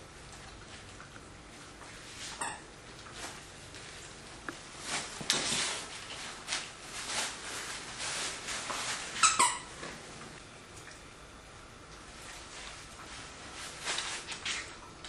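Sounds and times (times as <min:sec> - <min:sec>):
dog chewing squeaky toy: 0:09.2 - 0:09.8.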